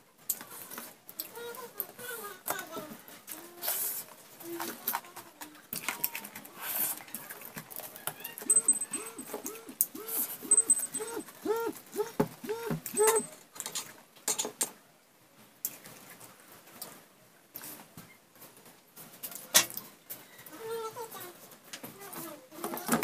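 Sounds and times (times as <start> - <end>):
short rising and falling calls: 8.4 - 13.3.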